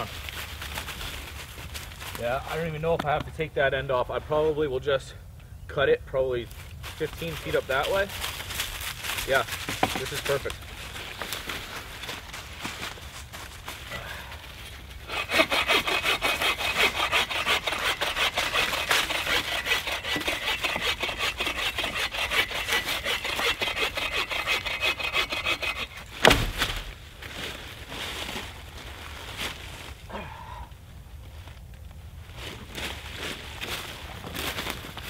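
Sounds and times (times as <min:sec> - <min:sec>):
rustling in dry leaves: 0:00.0 - 0:02.5, 0:06.5 - 0:17.2, 0:25.6 - 0:35.0
hand saw cutting log: 0:15.0 - 0:26.9
loud wood crack: 0:15.1 - 0:27.0.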